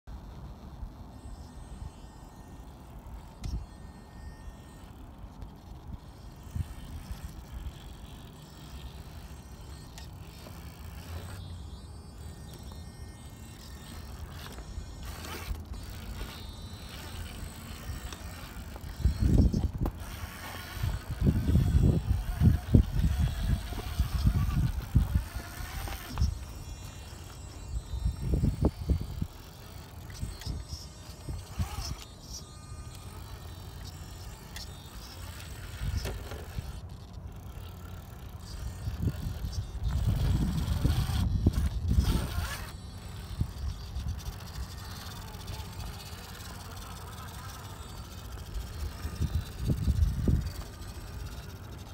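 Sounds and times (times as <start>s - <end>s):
electric motor and drivetrain whirring: 0.0s - 51.9s
wind buffeting microphone: 14.3s - 27.0s, 27.6s - 32.0s, 38.5s - 45.9s, 48.6s - 51.5s.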